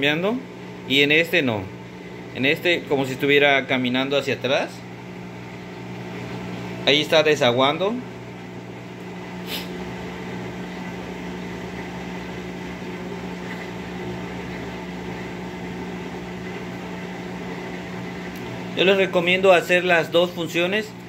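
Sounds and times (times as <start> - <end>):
washing machine drain pump humming: 0.0 - 21.0.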